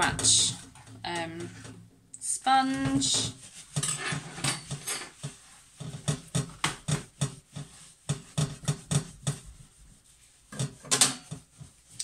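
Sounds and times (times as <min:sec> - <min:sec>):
sponge scrubbing glass: 0:02.4 - 0:12.0.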